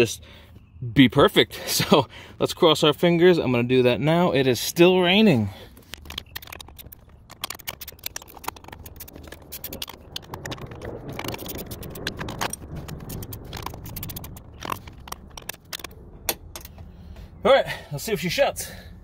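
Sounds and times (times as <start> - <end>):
hand tools clicking and scraping: 5.2 - 16.9.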